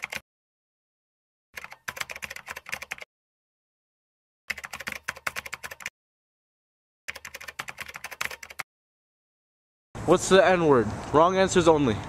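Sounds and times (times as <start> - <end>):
keyboard typing clicks: 0.0 - 0.2, 1.6 - 3.1, 4.5 - 5.9, 7.1 - 8.6.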